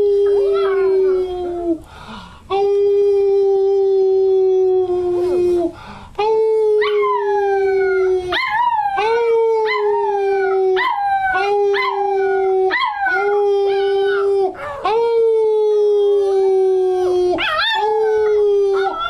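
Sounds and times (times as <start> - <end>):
puppy howling: 0.0 - 1.8, 6.8 - 15.0, 15.6 - 19.0.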